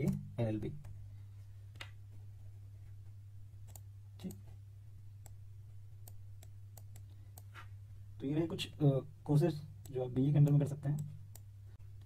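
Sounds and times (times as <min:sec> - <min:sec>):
low electrical hum: 0:00.0 - 0:12.0
computer mouse clicks: 0:03.6 - 0:04.4, 0:06.0 - 0:07.5.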